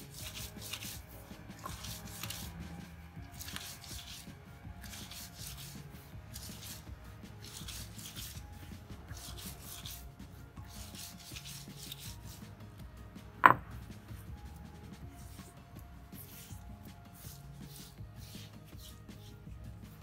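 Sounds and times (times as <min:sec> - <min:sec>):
stone roller grinding on stone: 0:00.0 - 0:10.0.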